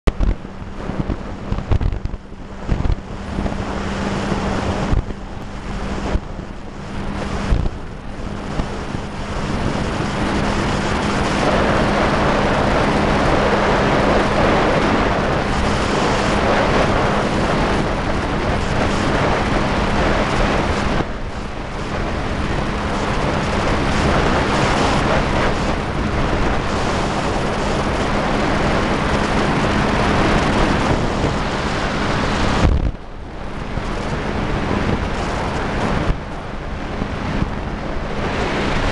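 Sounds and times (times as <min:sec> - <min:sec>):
boat engine humming: 0:00.0 - 0:38.9
wind buffeting microphone: 0:00.1 - 0:38.9.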